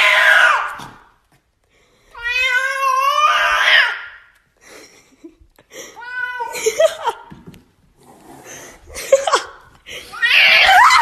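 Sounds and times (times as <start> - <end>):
cat yowling: 0.0 - 0.8, 2.2 - 4.2, 10.2 - 11.0.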